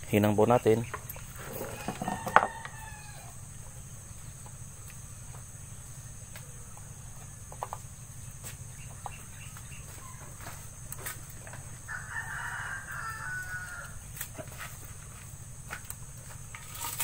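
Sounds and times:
chickens clucking: 0.5 - 5.6, 6.2 - 11.9.

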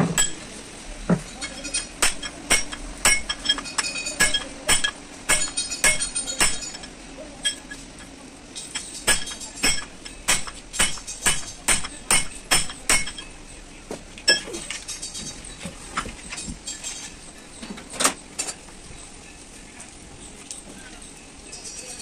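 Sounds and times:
steel bar clinking on metal shaft: 1.3 - 13.4.

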